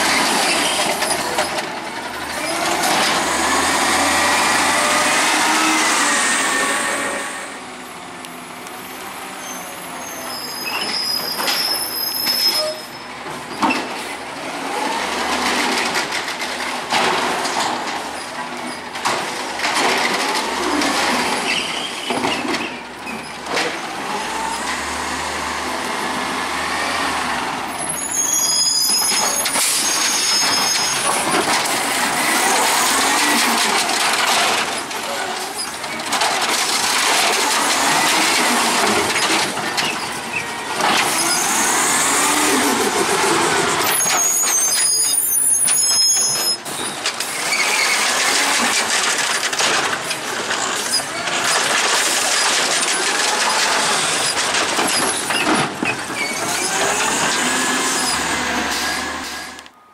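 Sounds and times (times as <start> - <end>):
garbage truck engine and hydraulics: 0.0 - 59.9
short high-pitched squeals: 4.2 - 7.6, 9.4 - 13.2, 27.8 - 31.2, 43.8 - 48.2.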